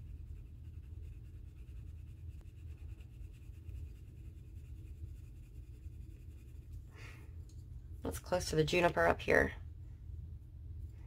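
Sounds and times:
colored pencil scratching on paper: 0.0 - 6.9.

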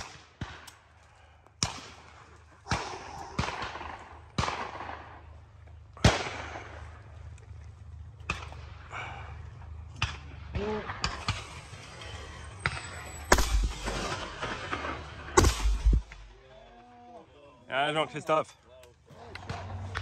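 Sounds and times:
steady low rumble: 2.4 - 16.7
shotgun shots: 2.7 - 5.3, 6.0 - 6.8, 10.0 - 16.6.

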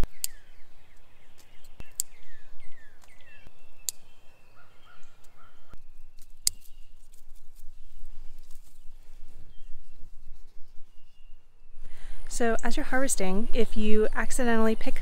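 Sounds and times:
birds chirping: 0.0 - 10.1
scissors snipping stems: 6.1 - 7.7.

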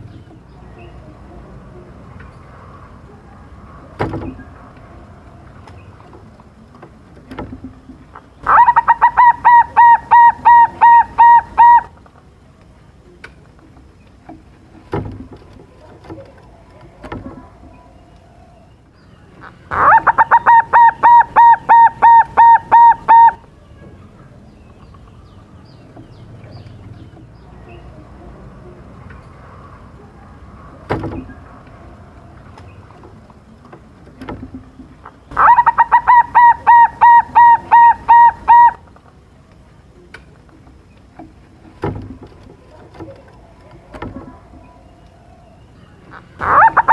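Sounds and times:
dove rapid cooing: 8.4 - 11.9, 19.7 - 23.4, 35.3 - 38.8, 46.1 - 46.9.

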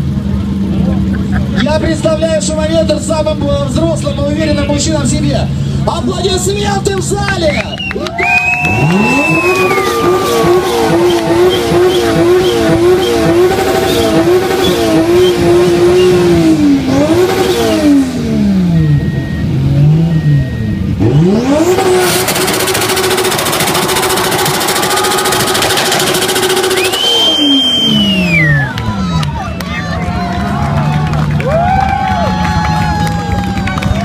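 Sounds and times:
car engine revving: 8.1 - 31.6
tyres spinning: 21.4 - 28.8.

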